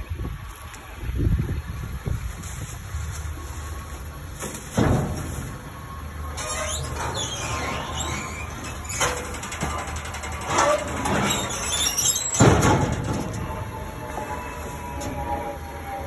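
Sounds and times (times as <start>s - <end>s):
heavy metal clunk: 4.4s - 5.6s, 6.3s - 15.5s
metal chute squeaking and clanking: 4.4s - 16.0s.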